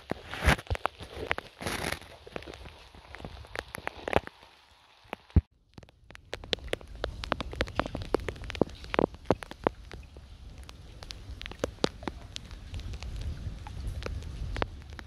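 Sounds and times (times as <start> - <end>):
raindrop ticks: 0.0 - 15.0
wind rumble on microphone: 5.1 - 15.0.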